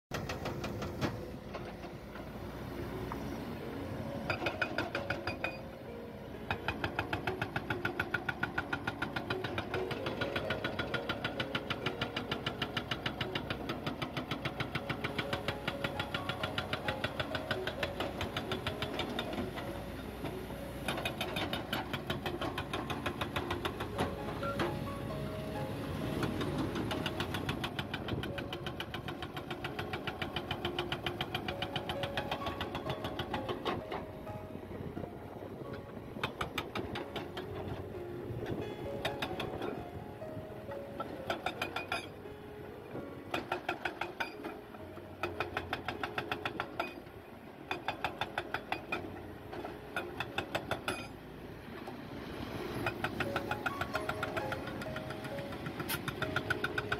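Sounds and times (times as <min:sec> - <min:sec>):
hydraulic rock breaker hammering: 0:00.1 - 0:02.0, 0:06.5 - 0:19.7, 0:20.3 - 0:24.7, 0:26.2 - 0:33.9, 0:43.2 - 0:44.6
diesel engine running: 0:00.1 - 0:47.5.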